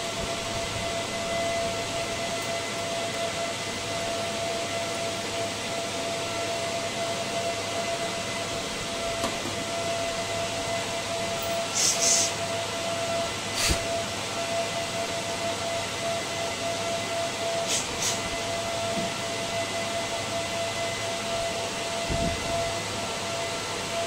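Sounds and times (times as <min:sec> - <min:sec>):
cooling fans whirring: 0:00.0 - 0:24.0
thin steady whine: 0:00.0 - 0:24.0.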